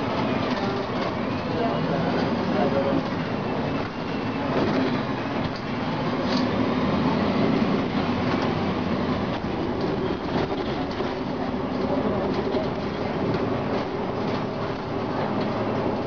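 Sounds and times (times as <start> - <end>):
bus diesel engine running: 0.0 - 16.0
road and body noise: 0.0 - 16.0.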